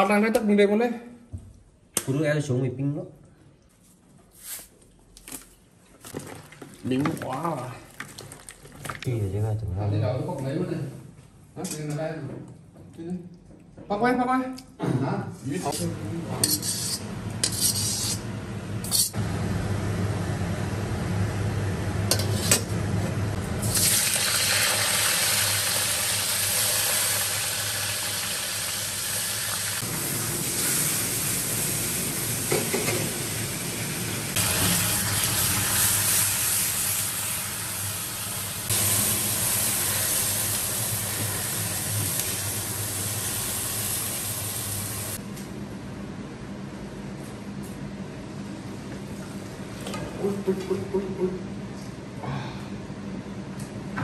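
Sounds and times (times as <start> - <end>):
metal ladle scraping a wok: 16.4 - 18.2
water hissing and sizzling in a wok: 23.6 - 45.2.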